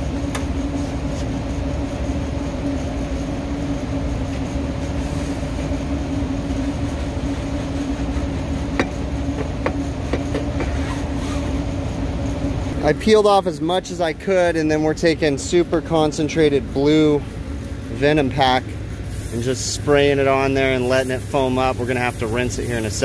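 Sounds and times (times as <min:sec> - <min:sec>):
air conditioning machinery humming: 0:00.0 - 0:23.0
brush scraping metal coil: 0:19.1 - 0:23.0.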